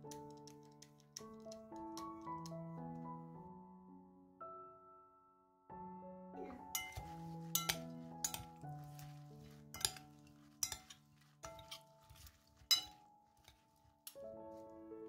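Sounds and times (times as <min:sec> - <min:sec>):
soft piano music: 0:00.0 - 0:15.0
utensils clinking on glass bowl: 0:06.7 - 0:14.2.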